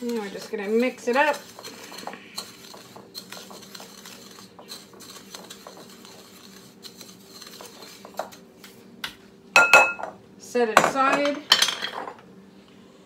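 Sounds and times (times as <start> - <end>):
spoon scraping breadcrumbs: 0.0 - 8.9
spoon tapping glass bowl: 9.6 - 10.1.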